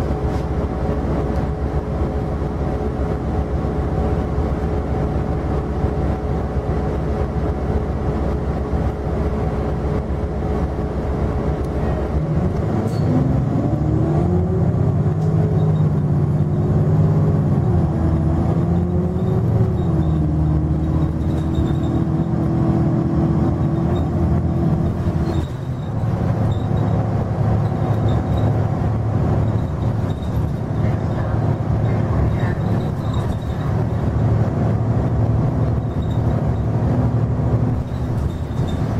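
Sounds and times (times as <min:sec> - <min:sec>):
diesel bus engine: 0:00.0 - 0:38.9
transmission whine: 0:11.8 - 0:38.9.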